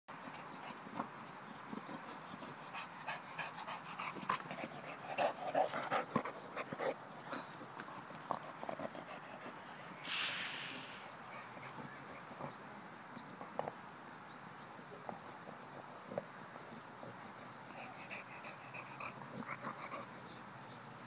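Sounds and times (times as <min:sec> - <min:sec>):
dog panting: 0:00.2 - 0:09.7, 0:17.0 - 0:21.0
short rush of noise: 0:10.0 - 0:11.1.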